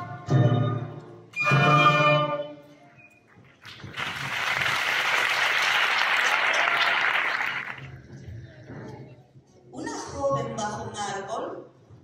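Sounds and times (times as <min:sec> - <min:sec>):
audience applause: 0:03.4 - 0:08.0.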